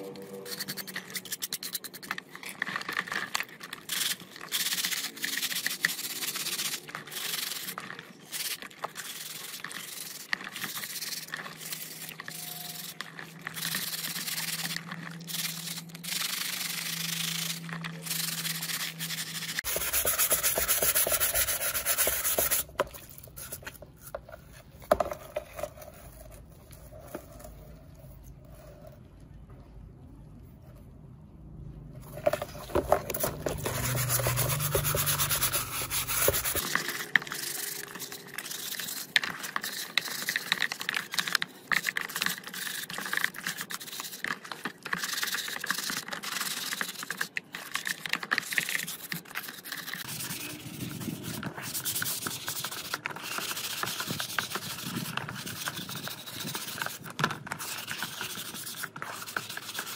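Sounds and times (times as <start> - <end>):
faint high whine: 0.0 - 1.3
low hum: 0.0 - 1.3
hand sanding strokes: 13.6 - 22.7, 33.4 - 36.6.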